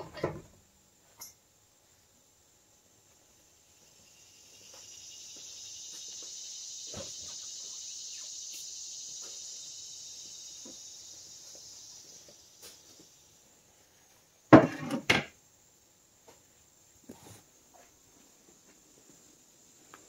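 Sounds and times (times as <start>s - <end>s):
high insect buzzing: 4.0s - 13.1s.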